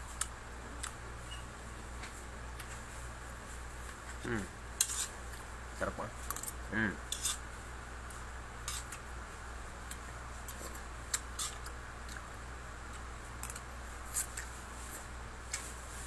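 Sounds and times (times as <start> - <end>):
steady low hum: 0.0 - 16.0
fork scraping a plate: 4.8 - 5.2, 6.3 - 7.4, 8.6 - 9.0, 11.4 - 11.7.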